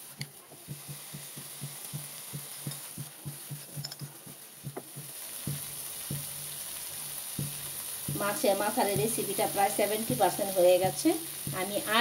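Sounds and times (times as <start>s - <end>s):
faint steady sizzle: 0.0s - 12.0s
spatula tapping pan: 0.0s - 12.0s
spatula thumping in frying pan: 0.6s - 12.0s.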